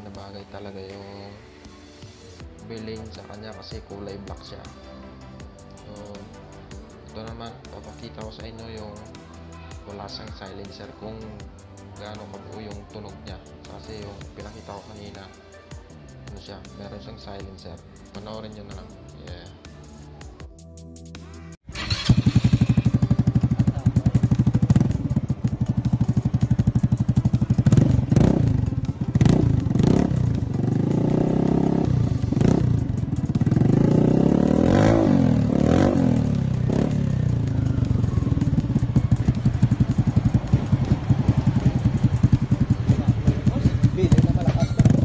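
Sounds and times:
scooter engine idling and revving: 0:21.7 - 0:45.0.

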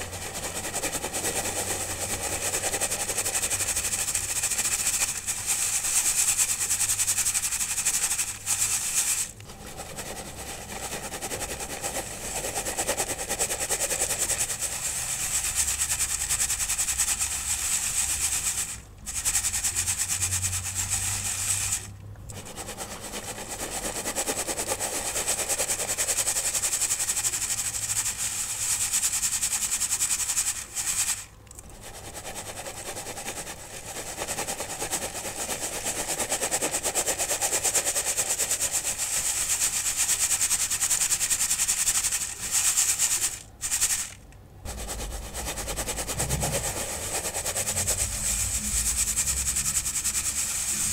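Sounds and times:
powder sifting through sieve: 0:00.0 - 0:50.9.

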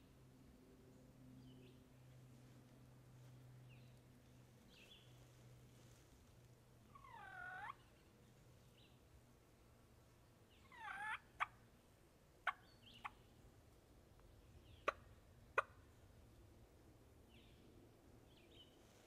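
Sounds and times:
turkey gobbling: 0:06.9 - 0:07.8, 0:10.6 - 0:11.6, 0:15.6 - 0:15.8
turkey clucking: 0:07.0 - 0:07.8, 0:10.7 - 0:11.6, 0:15.6 - 0:15.8.

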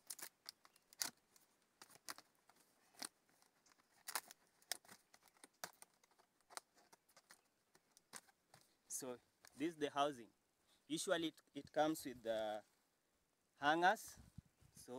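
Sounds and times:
sheet crinkling and clicking: 0:00.0 - 0:08.8.

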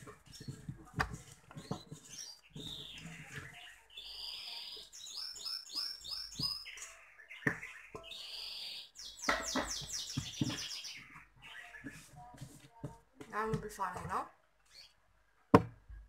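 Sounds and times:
mixing bowl knock: 0:00.0 - 0:03.6
bird chirping: 0:00.1 - 0:12.2, 0:14.6 - 0:15.0.

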